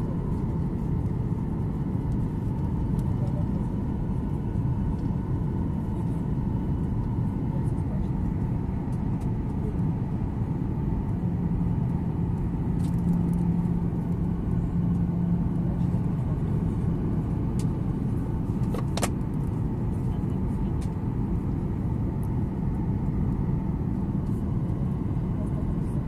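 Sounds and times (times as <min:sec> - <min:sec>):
jet engine rumble in cabin: 0:00.0 - 0:26.0.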